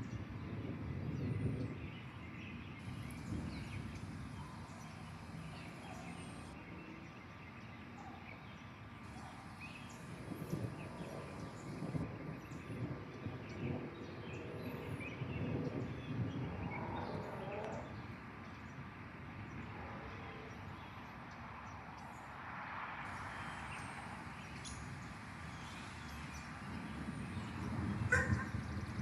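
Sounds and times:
birds chirping: 2.0 - 18.8, 23.0 - 29.0.

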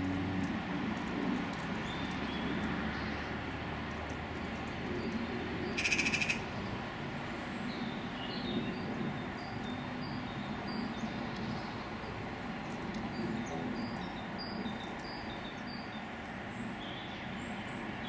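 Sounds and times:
small birds chirping: 1.5 - 3.4, 4.0 - 18.0
harsh rattling bird call: 5.6 - 6.6.

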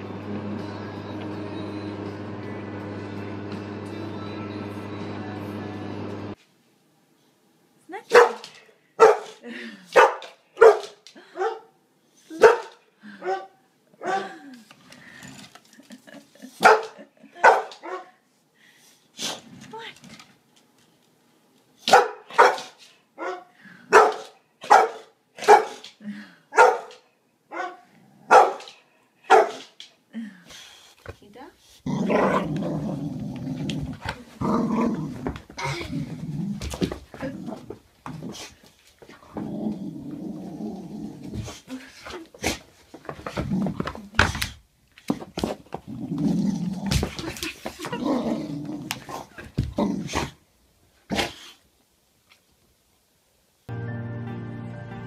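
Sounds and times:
dog barking: 8.1 - 9.4, 10.0 - 11.7, 12.4 - 14.3, 16.6 - 18.2, 21.9 - 25.8, 26.5 - 29.7
dog growling: 31.8 - 38.4, 39.2 - 41.5, 45.9 - 47.1, 47.9 - 50.4.

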